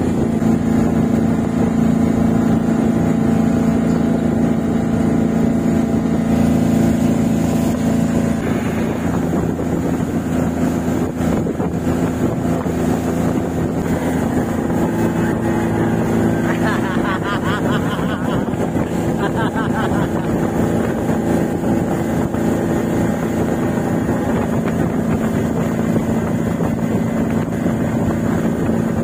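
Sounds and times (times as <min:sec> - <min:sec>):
motorboat engine droning: 0:00.0 - 0:29.0.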